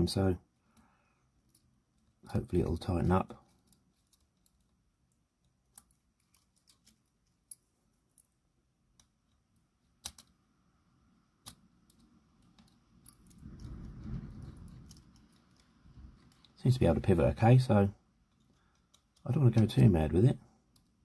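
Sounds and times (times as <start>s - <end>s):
fingers rustling: 3.3s - 10.5s.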